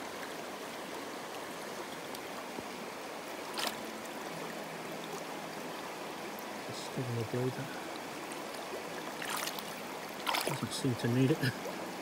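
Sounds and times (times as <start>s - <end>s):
river water rushing: 0.0s - 12.0s
sharp splash: 3.5s - 3.8s, 9.2s - 10.7s.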